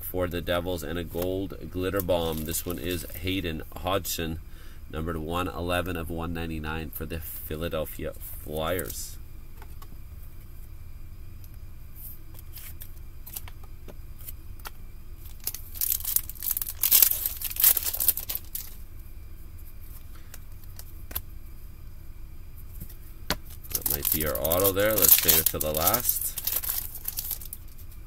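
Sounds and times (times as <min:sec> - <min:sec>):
wrapper crinkling and tearing: 0:01.9 - 0:03.2, 0:15.2 - 0:18.8, 0:23.6 - 0:27.9
cards being shuffled: 0:01.9 - 0:03.4, 0:08.6 - 0:09.0, 0:12.0 - 0:18.8, 0:22.7 - 0:28.0.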